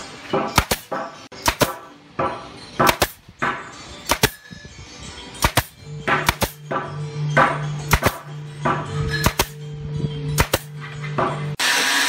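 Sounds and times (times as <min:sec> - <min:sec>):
background music: 0:00.0 - 0:11.6
nail gun shots: 0:00.4 - 0:04.4, 0:05.4 - 0:06.8, 0:07.4 - 0:09.6, 0:10.4 - 0:10.7.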